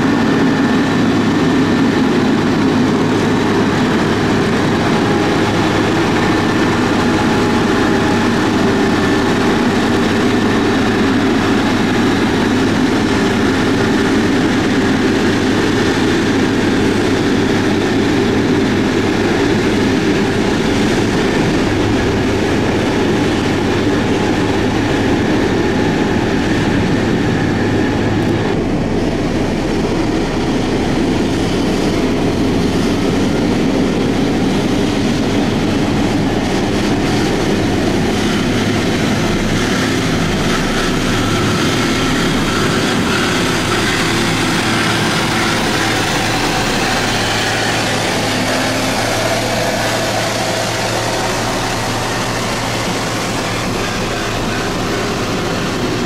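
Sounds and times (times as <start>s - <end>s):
diesel engine rumbling under load: 0.0s - 56.0s.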